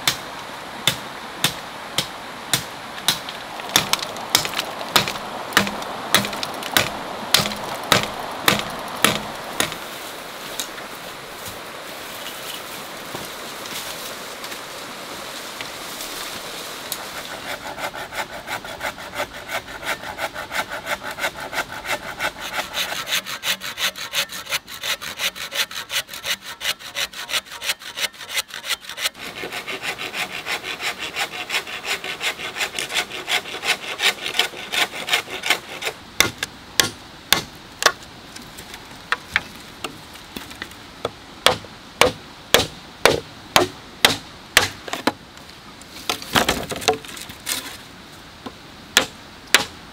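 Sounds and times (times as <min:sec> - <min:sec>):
sharp knocks on bamboo: 0:00.8 - 0:09.8, 0:36.2 - 0:38.0, 0:39.1 - 0:45.2, 0:46.1 - 0:47.2, 0:48.4 - 0:49.8
saw cutting bamboo: 0:03.1 - 0:09.8, 0:16.9 - 0:38.0, 0:41.4 - 0:45.2.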